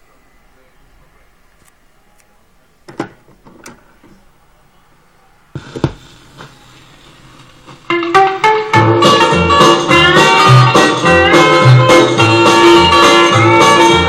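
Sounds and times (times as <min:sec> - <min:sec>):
record surface hiss and crackle: 0:00.0 - 0:13.9
stylus thump: 0:05.6 - 0:06.0.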